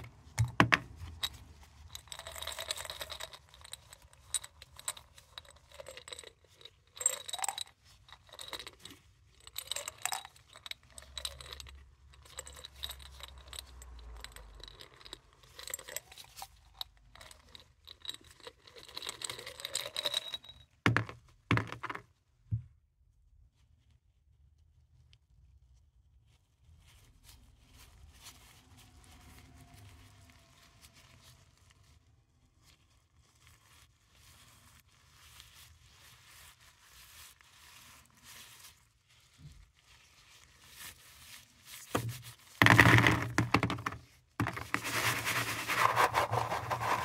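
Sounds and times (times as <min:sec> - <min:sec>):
mothballs rattling in glass jar: 0:00.0 - 0:22.0, 0:41.7 - 0:47.0.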